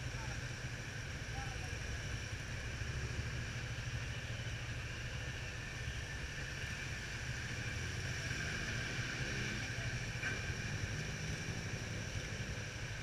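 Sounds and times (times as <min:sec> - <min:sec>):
motorcycle engine idling: 0:00.0 - 0:08.3.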